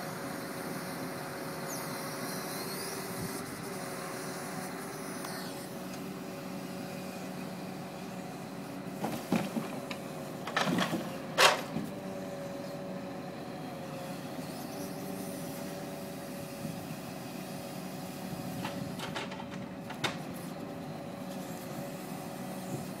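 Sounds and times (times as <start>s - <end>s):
sharp knocks and clatters: 9.0s - 11.9s, 18.6s - 20.2s.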